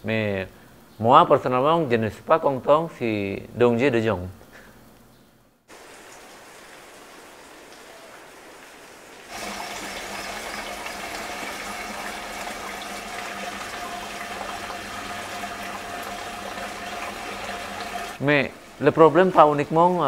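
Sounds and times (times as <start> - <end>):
faint steady hum: 0.0 - 20.0
water bubbling and rushing: 5.7 - 18.8.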